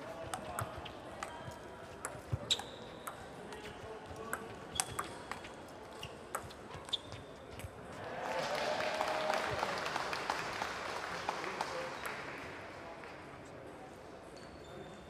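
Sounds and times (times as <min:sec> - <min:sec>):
low hum of a hall: 0:00.0 - 0:15.0
table tennis balls clicking: 0:00.2 - 0:07.7.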